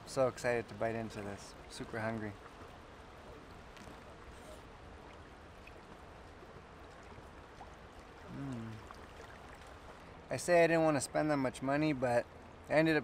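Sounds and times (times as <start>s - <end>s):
river flowing: 0.0s - 13.0s
man's short vocal sound: 8.3s - 8.8s.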